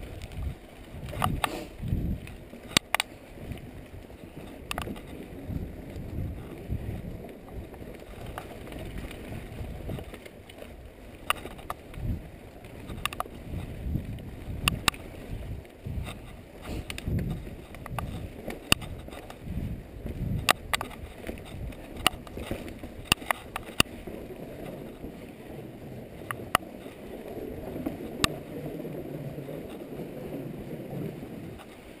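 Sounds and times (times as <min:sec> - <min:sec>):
bike clacking and rattling: 0:00.0 - 0:25.2
bike tyre and trail rumble: 0:00.0 - 0:32.0.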